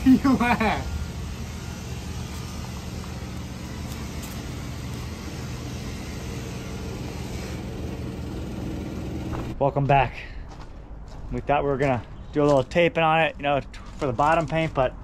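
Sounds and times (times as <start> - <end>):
motor running steadily: 0.0 - 9.6.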